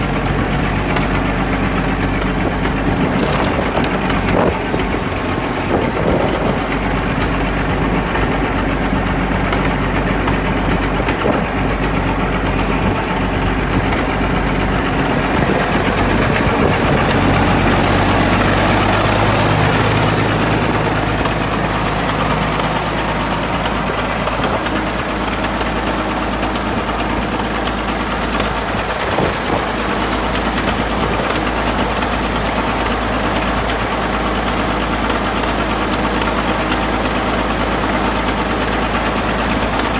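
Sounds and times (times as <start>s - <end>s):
crawler tractor engine idling: 0.0s - 39.9s.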